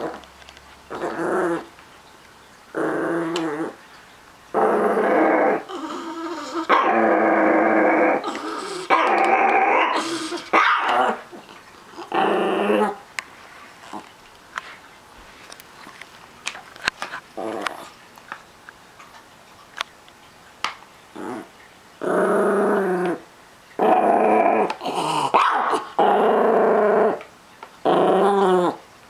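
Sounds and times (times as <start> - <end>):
small dog growling: 0.9 - 1.7, 2.7 - 3.8, 4.5 - 13.0, 13.8 - 14.1, 17.4 - 18.0, 21.1 - 23.2, 23.8 - 28.8.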